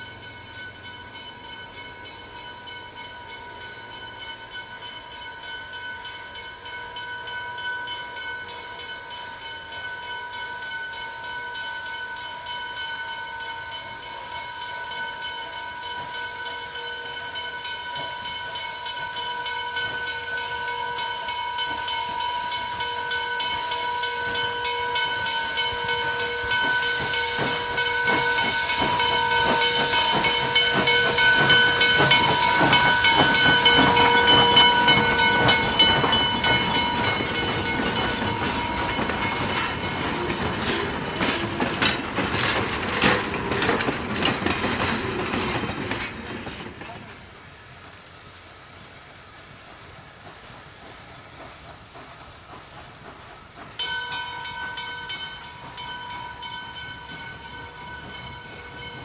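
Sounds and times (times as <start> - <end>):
steam locomotive whistling hiss: 0.0 - 59.0
clatter of running gear and wheels: 39.5 - 47.0.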